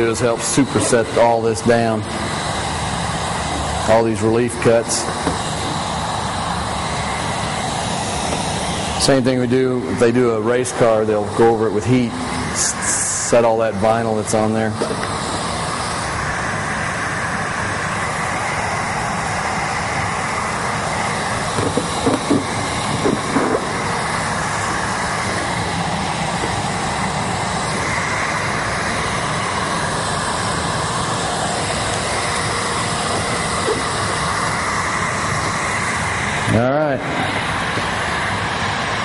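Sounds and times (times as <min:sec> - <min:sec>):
heat gun fan blowing: 0:00.0 - 0:39.0.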